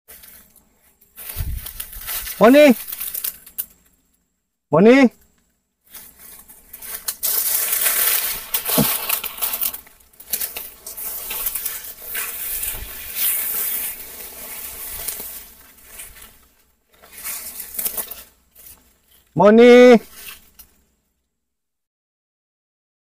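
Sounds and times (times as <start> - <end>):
footsteps through dry leaves: 0.1 - 3.6, 5.9 - 19.4.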